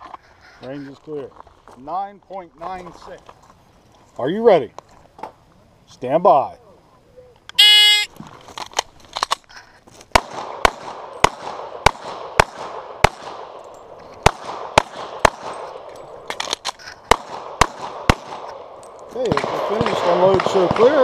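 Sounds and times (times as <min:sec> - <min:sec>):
pistol shots: 0:10.1 - 0:13.6, 0:14.2 - 0:15.8, 0:17.1 - 0:21.0.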